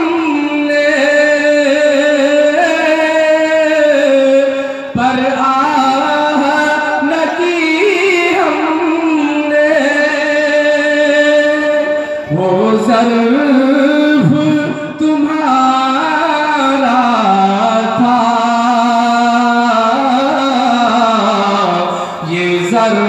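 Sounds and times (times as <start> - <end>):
man singing into a microphone: 0.0 - 23.0.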